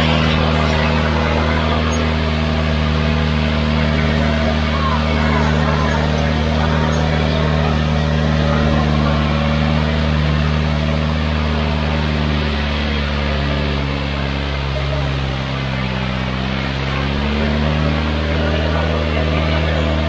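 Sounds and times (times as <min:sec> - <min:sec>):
tractor diesel engine under load: 0:00.0 - 0:20.0.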